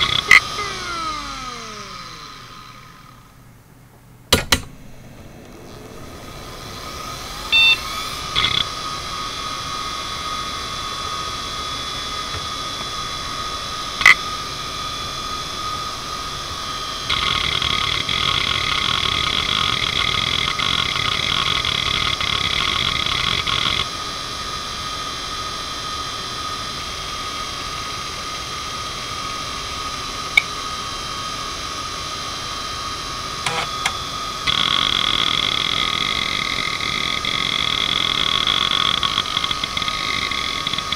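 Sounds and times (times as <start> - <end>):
hard drive seek clicks: 0.0 - 1.1, 7.5 - 8.7, 14.0 - 14.2, 17.1 - 23.9, 33.5 - 40.9
hard drive spinning whine: 0.0 - 40.9.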